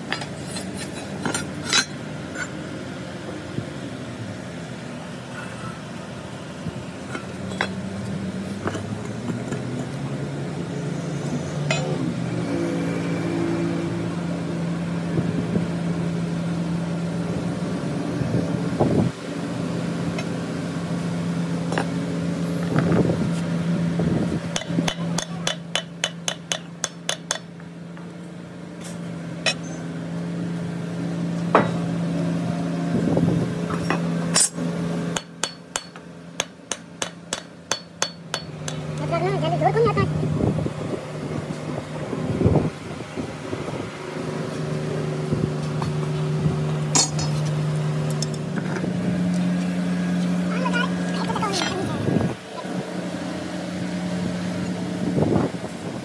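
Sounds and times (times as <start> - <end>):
hammer tapping on steel: 24.5 - 27.5, 35.2 - 38.9.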